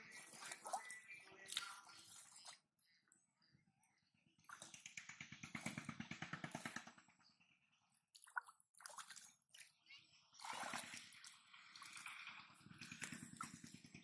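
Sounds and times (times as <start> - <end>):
hands splashing in muddy water: 0.1 - 2.6, 8.1 - 9.8, 10.4 - 13.8.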